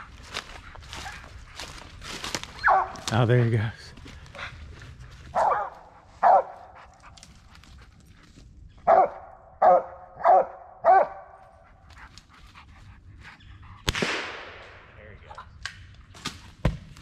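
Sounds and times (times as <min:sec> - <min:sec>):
dog barking: 0:02.6 - 0:03.1, 0:05.3 - 0:06.9, 0:08.8 - 0:11.6
sharp crack with echo: 0:13.9 - 0:15.0.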